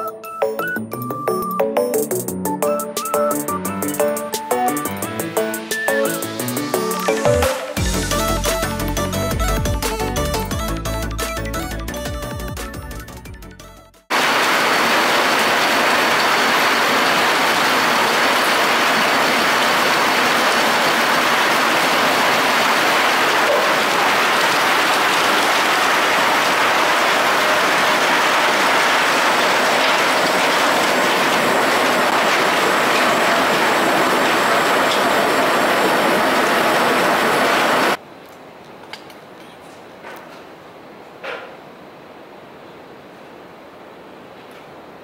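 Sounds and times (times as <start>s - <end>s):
wood chips clattering: 14.1s - 35.6s
belt conveyor running: 14.1s - 38.0s.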